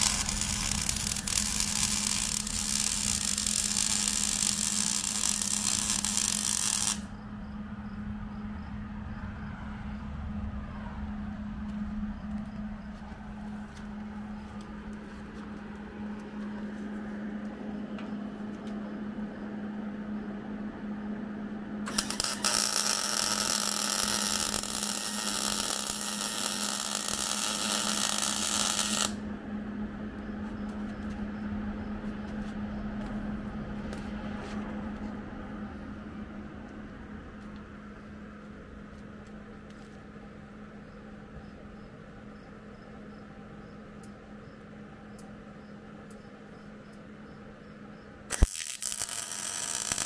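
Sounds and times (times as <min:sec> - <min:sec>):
welder arc crackling and hissing: 0:00.0 - 0:07.2, 0:21.9 - 0:29.2, 0:48.3 - 0:50.0
steady low hum: 0:00.0 - 0:50.0.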